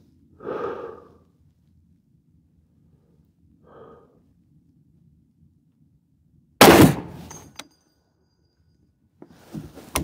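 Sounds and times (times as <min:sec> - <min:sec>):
suppressed rifle shot: 0:06.6 - 0:07.4.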